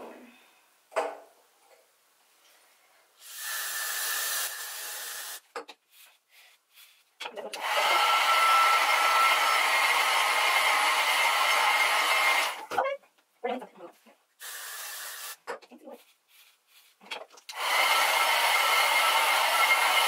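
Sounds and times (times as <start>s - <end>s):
aerosol spray hiss: 3.2s - 5.4s, 14.4s - 15.5s
hair dryer running: 7.5s - 12.7s, 17.5s - 20.0s
hairbrush strokes through hair: 14.8s - 17.0s.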